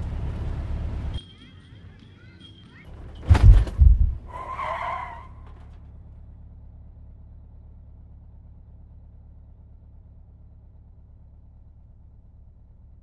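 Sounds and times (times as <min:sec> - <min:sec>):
car tyres screeching: 0:00.0 - 0:06.2
low steady rumble: 0:02.9 - 0:13.0
heavy thud: 0:03.2 - 0:04.3.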